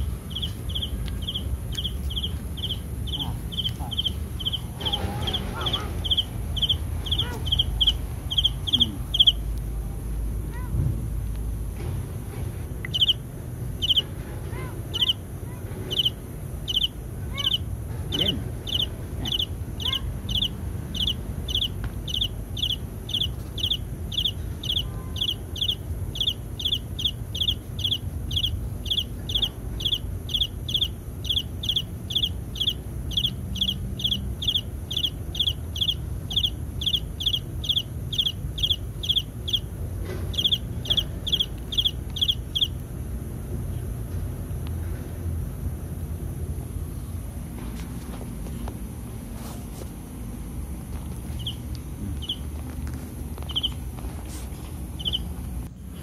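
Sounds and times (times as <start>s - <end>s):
high-pitched animal chirping: 0.0s - 9.5s, 12.9s - 13.2s, 13.8s - 39.7s, 40.3s - 42.8s, 51.4s - 52.5s, 53.4s - 53.8s, 55.0s - 55.3s.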